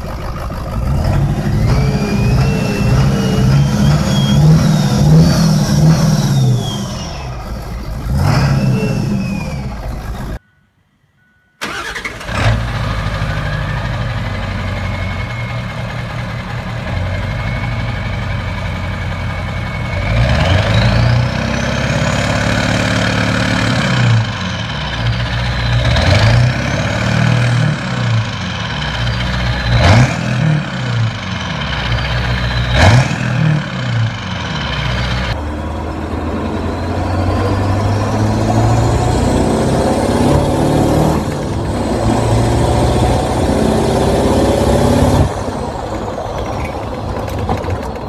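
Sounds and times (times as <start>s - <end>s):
diesel engine revving: 0.0s - 10.4s, 11.6s - 48.0s
turbo whistle: 1.7s - 7.4s.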